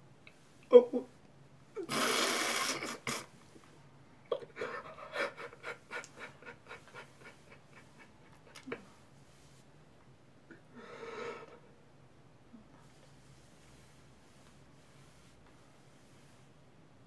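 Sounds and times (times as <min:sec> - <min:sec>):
person sobbing: 0:00.6 - 0:01.2, 0:04.3 - 0:08.8.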